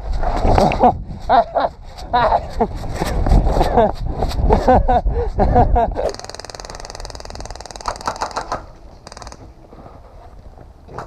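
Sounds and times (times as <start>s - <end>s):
airsoft rifle firing bursts: 6.1s - 9.5s.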